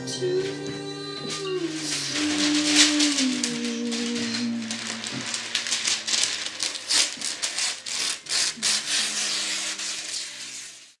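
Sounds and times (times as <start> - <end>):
dry rattling and rustling: 1.3 - 8.5.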